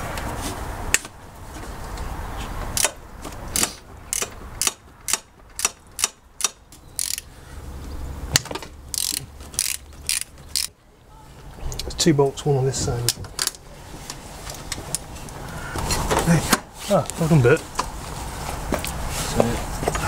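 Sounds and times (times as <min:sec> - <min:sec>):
socket ratchet clicking: 0:03.6 - 0:07.3, 0:08.9 - 0:10.7.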